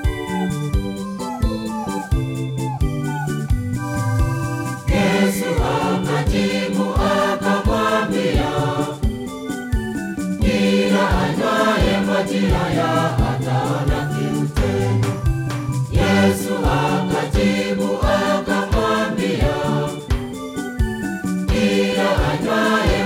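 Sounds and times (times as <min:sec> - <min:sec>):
steady beat with bass line: 0:00.0 - 0:09.1
choir singing gospel song: 0:04.8 - 0:23.0.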